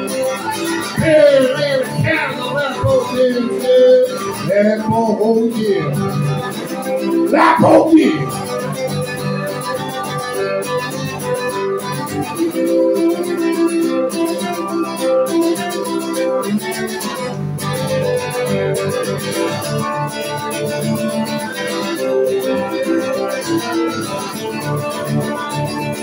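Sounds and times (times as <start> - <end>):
acoustic guitar strumming: 0.0 - 26.0.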